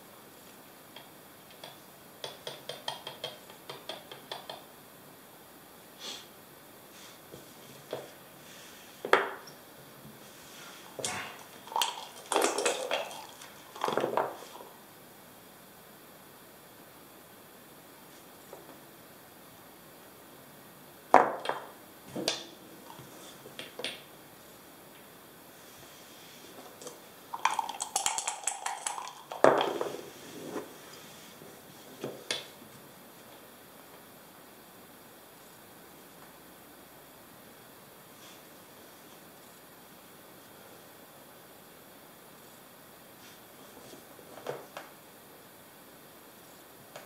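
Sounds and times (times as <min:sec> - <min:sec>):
dice clattering: 0:11.0 - 0:14.5, 0:27.4 - 0:29.9.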